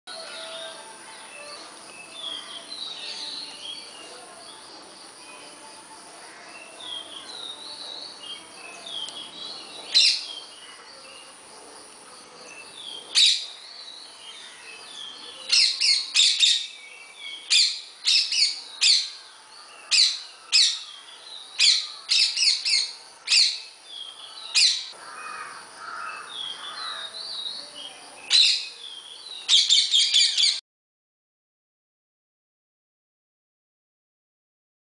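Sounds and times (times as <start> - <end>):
high bird chirping: 6.6 - 10.6, 14.8 - 19.2, 19.9 - 24.9, 26.2 - 30.6.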